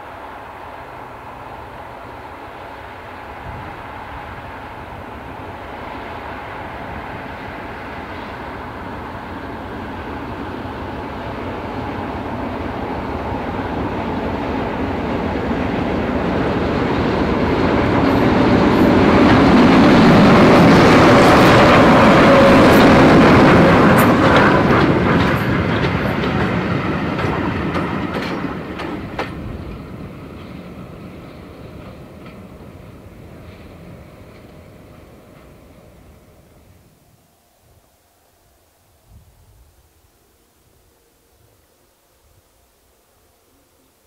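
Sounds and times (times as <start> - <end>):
diesel locomotive engine: 0.0 - 41.6
wheels clacking over rail joints: 13.5 - 36.0.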